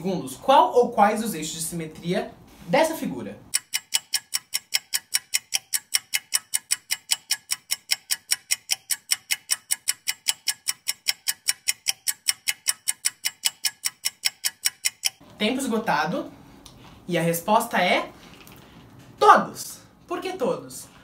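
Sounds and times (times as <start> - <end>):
fast clock-like ticking: 3.5 - 15.2.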